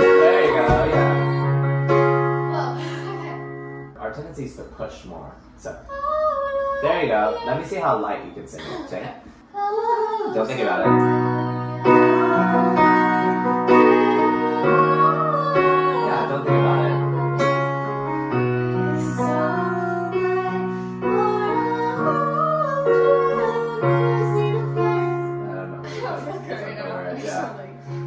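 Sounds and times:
young woman singing: 0.0s - 3.4s, 5.9s - 7.9s, 9.5s - 25.4s
piano chords: 0.0s - 4.6s, 10.3s - 28.0s.

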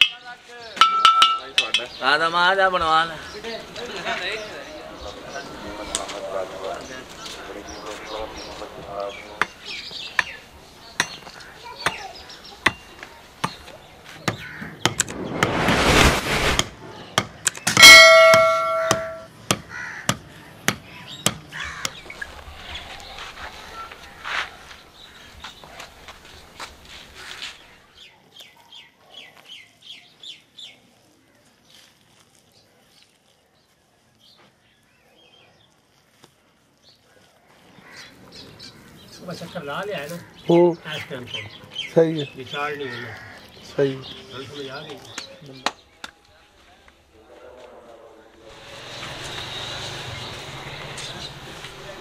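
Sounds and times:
small birds chirping: 1.4s - 15.4s, 19.7s - 46.6s, 48.6s - 52.0s
whoosh: 14.9s - 17.2s
bell-like ding: 17.8s - 19.3s.

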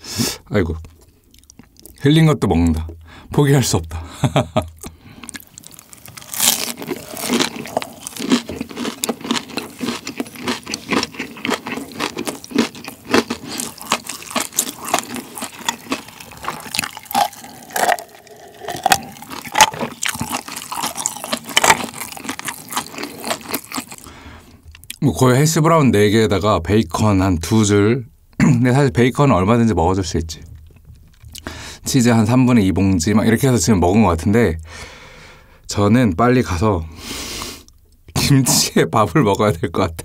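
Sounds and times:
wet mouth sounds: 4.7s - 24.1s
crunchy chewing: 4.8s - 24.1s.

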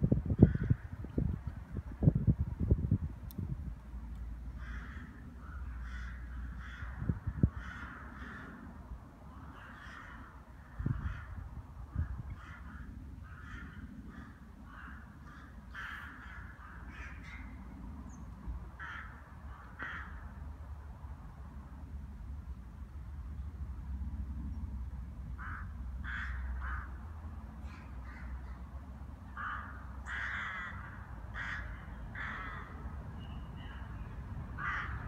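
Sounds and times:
rooks cawing: 0.4s - 0.9s, 4.5s - 17.7s, 18.8s - 20.4s, 25.4s - 28.7s, 29.3s - 33.0s, 34.6s - 35.0s.

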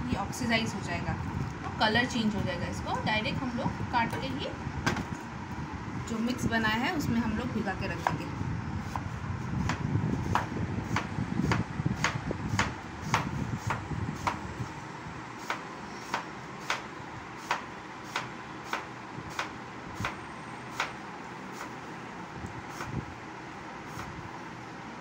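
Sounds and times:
knife chopping on wooden board: 9.6s - 14.4s, 15.4s - 21.7s.

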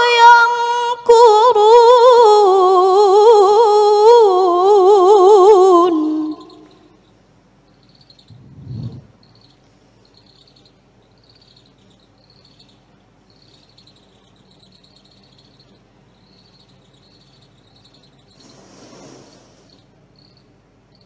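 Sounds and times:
crickets chirping: 4.7s - 21.0s
low hum: 8.2s - 9.6s
brief rush of noise: 8.3s - 9.2s.

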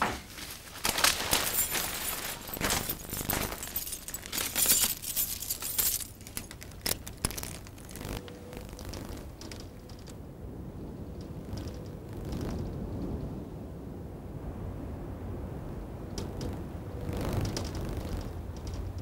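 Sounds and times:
keys jangling and clinking: 1.1s - 8.0s.

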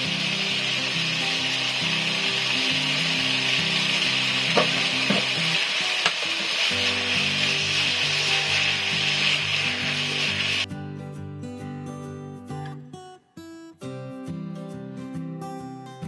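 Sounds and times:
vegetables sizzling in frying pan: 0.0s - 10.7s
soft background music: 0.0s - 16.0s.

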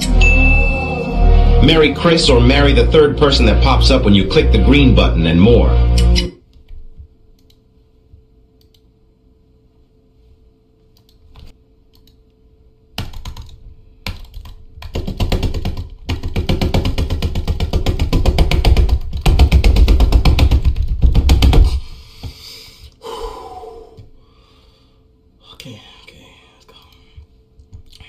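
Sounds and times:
computer keyboard typing: 13.0s - 21.6s.

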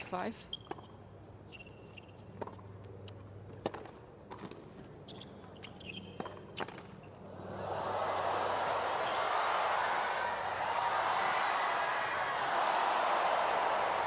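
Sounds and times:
sneaker squeaks on court: 0.5s - 3.2s, 4.4s - 7.2s
racket hitting tennis ball: 3.5s - 4.7s
crowd cheering: 7.3s - 14.0s.

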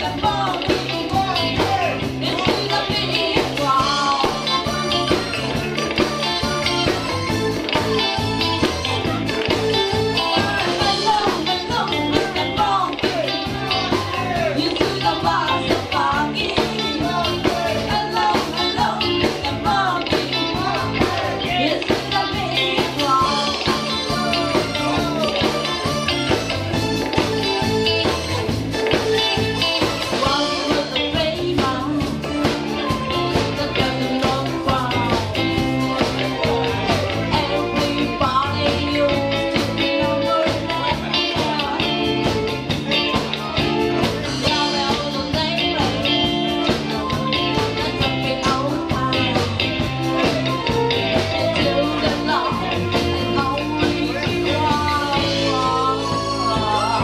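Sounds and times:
female vocals: 0.0s - 5.5s, 9.6s - 25.6s, 30.0s - 57.0s
live band playing disco: 0.0s - 57.0s.

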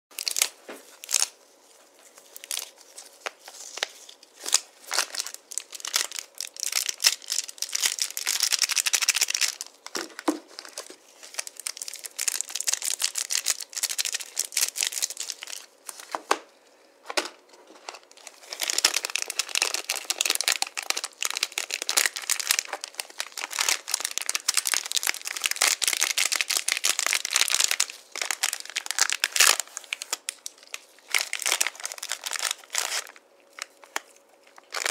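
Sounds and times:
wrappers crinkling and tearing: 0.2s - 16.2s, 17.8s - 34.9s.

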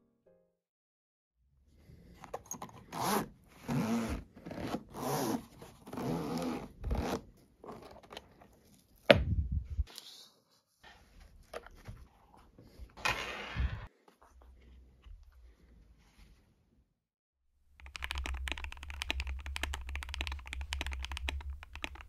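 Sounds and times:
zipper being pulled open: 2.8s - 7.3s.

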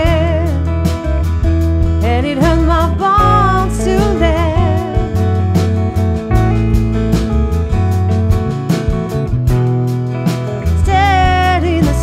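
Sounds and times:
woman singing: 0.0s - 0.7s, 2.0s - 5.3s, 10.6s - 12.0s
bass guitar: 0.0s - 12.0s
drums keeping a steady beat: 0.0s - 12.0s
strummed acoustic guitar: 0.0s - 12.0s.

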